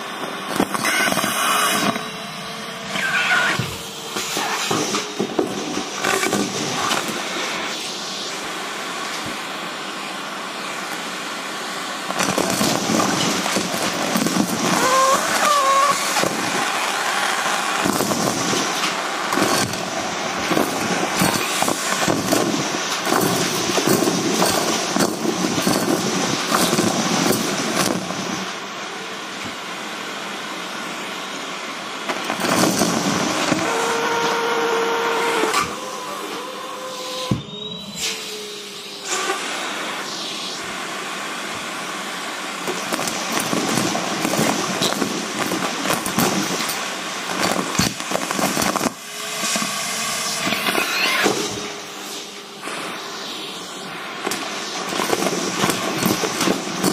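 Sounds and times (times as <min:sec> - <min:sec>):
vacuum cleaner running: 0:00.0 - 0:56.9
brief whistle: 0:14.8 - 0:16.1, 0:33.6 - 0:39.4.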